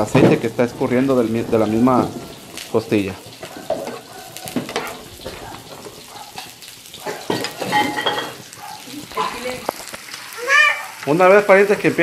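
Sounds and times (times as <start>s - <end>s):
meat sizzling in a frying pan: 0.0s - 12.0s
spatula scraping a pan: 3.2s - 8.6s.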